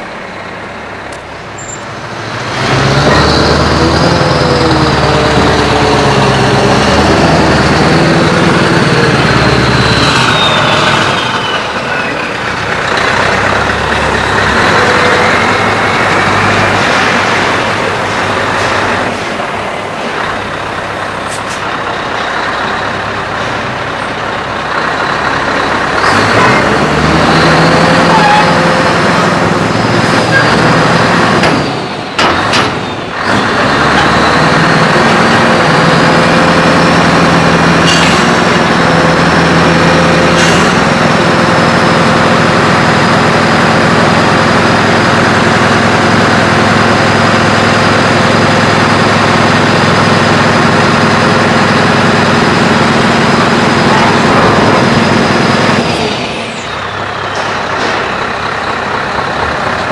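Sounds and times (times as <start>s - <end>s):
truck engine: 0.0s - 59.9s.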